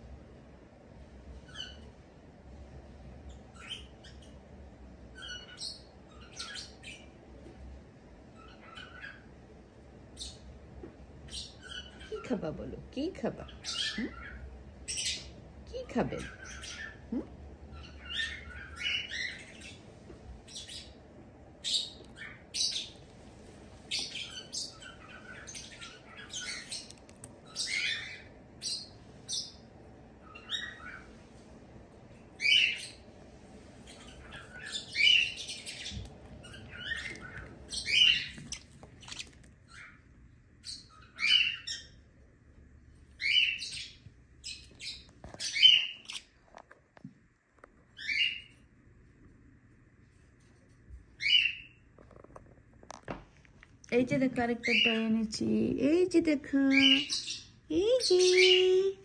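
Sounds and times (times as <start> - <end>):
lovebird chirping: 3.3 - 4.4, 5.1 - 7.1, 8.4 - 9.3, 13.0 - 21.0, 21.6 - 23.1, 23.8 - 31.1, 32.3 - 33.0, 33.8 - 42.0, 43.2 - 46.4, 48.0 - 48.6, 51.2 - 51.8, 54.6 - 55.1, 56.2 - 59.0.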